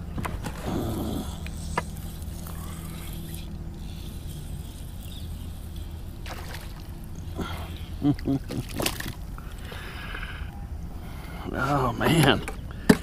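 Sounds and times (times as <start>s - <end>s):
electric motor humming: 0.4s - 8.2s.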